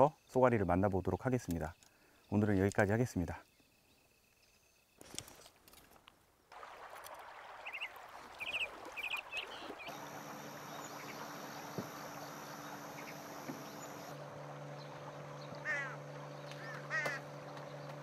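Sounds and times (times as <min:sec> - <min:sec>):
harsh bird calls: 0:07.6 - 0:14.2, 0:14.8 - 0:18.0
steady low hum: 0:09.8 - 0:18.0.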